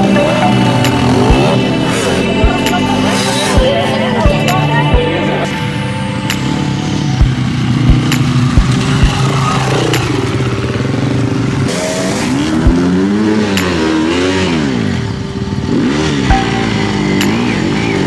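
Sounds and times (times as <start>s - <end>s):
dirt bike engines revving: 0.0s - 18.0s
sharp clacks: 9.8s - 10.4s, 13.5s - 13.9s.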